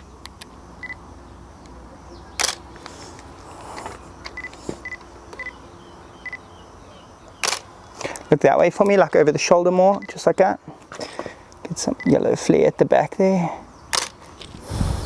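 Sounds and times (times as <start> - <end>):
short high camera beeps: 0.8 - 1.0, 4.3 - 5.6, 6.2 - 6.4
camera shutter clicks: 2.4 - 2.7, 7.4 - 7.7, 13.9 - 14.2.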